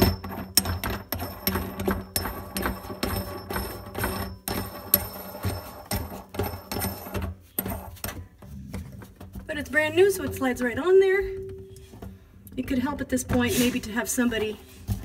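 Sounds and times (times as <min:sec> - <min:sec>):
small metallic scrapes: 0:00.0 - 0:08.4, 0:11.6 - 0:15.0.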